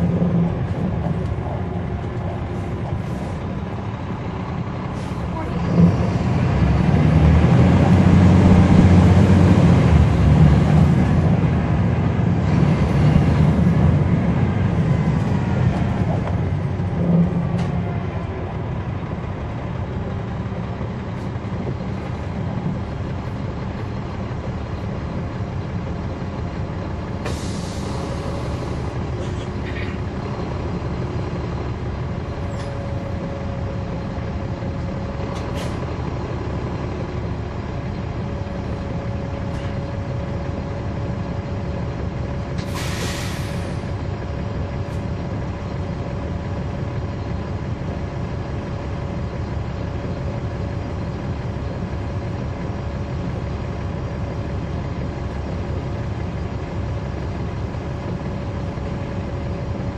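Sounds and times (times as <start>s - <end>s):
bus diesel engine: 0.0s - 59.9s
air hiss: 27.2s - 28.2s, 42.6s - 43.8s.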